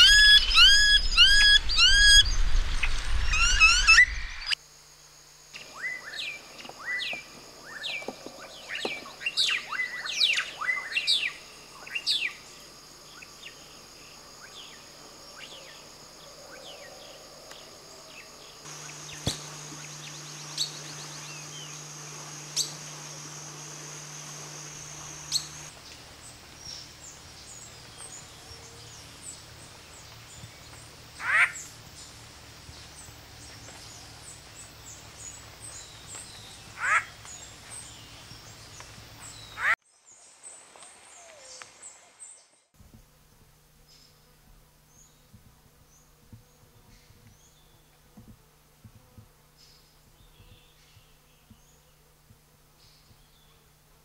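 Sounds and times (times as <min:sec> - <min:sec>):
blackbird singing: 0:00.0 - 0:04.6.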